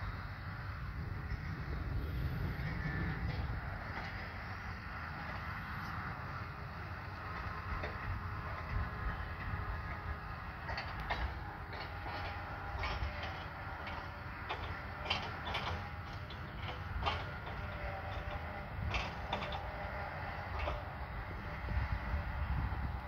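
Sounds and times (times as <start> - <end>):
low engine drone: 0.0 - 23.0
sharp clicks and rattles: 10.6 - 19.7, 20.4 - 20.9.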